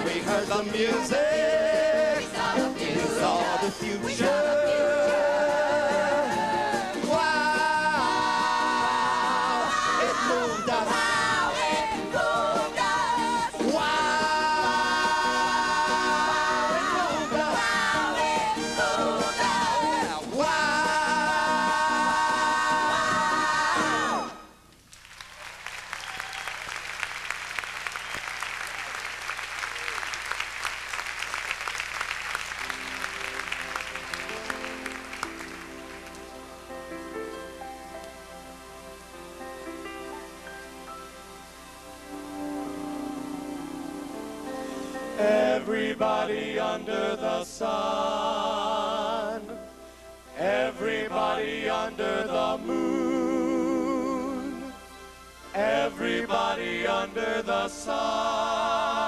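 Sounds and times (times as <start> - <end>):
cast singing with big band: 0.0 - 24.5, 42.0 - 49.7, 50.4 - 59.0
audience applauding: 24.9 - 37.0.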